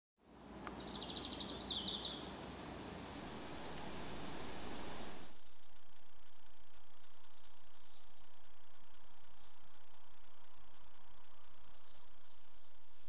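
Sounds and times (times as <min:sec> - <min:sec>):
steady woodland hiss: 0:00.2 - 0:05.4
small birds calling: 0:00.3 - 0:05.4.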